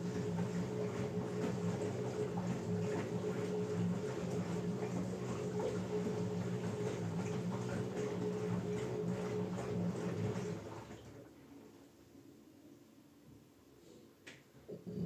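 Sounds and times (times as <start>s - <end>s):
laundry tumbling and splashing: 0.0s - 11.4s
washing machine motor humming: 0.0s - 11.7s.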